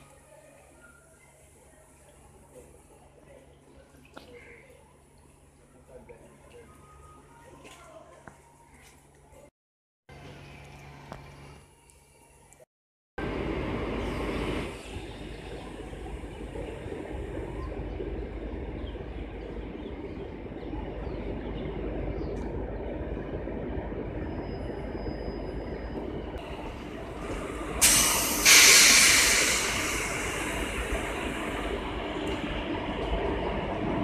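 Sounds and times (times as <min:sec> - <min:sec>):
locomotive hum and rumble: 0:13.2 - 0:34.0
loud bursts of hissing air: 0:27.8 - 0:31.7.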